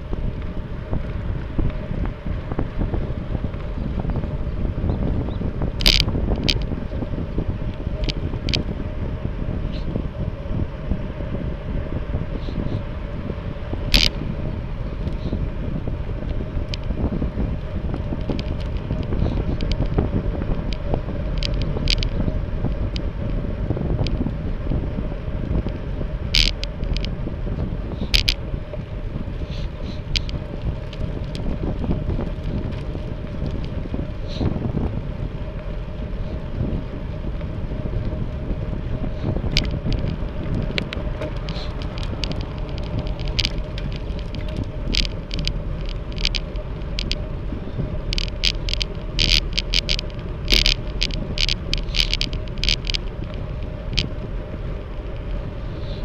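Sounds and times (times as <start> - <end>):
sharp clicks and rattles: 0.0 - 10.6, 12.6 - 56.0
wind buffeting microphone: 0.0 - 56.0.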